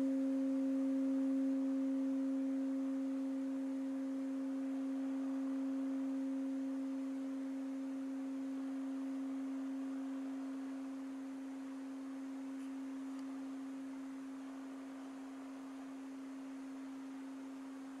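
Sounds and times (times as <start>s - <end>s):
singing bowl ringing: 0.0s - 18.0s.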